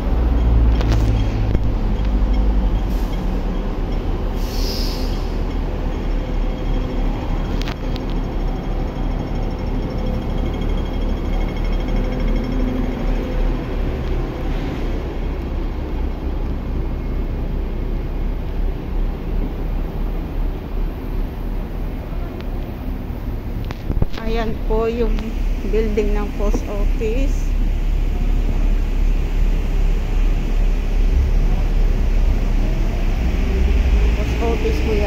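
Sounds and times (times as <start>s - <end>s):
bus passing: 0.0s - 35.0s
cars passing: 0.0s - 35.0s.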